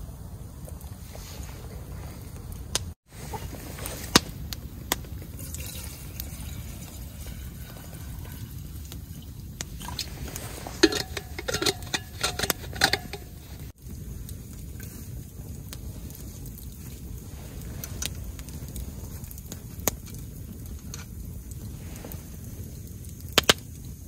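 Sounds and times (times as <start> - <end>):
water pouring into metal pot: 3.2 - 13.8.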